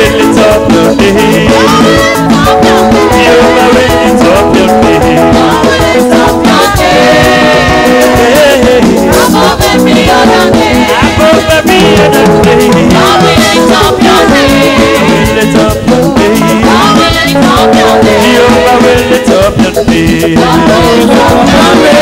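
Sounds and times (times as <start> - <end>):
instrumental accompaniment: 0.0 - 22.0
voices singing worship song: 0.0 - 22.0.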